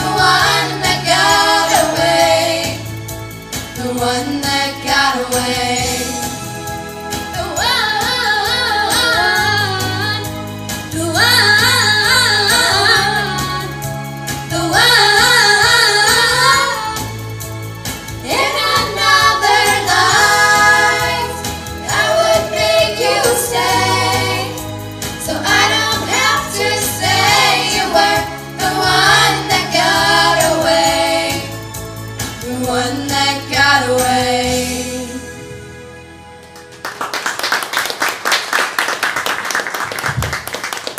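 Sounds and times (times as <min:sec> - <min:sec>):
female vocal group singing: 0:00.0 - 0:02.9, 0:03.8 - 0:06.2, 0:14.5 - 0:17.1, 0:18.2 - 0:31.5, 0:32.4 - 0:35.3.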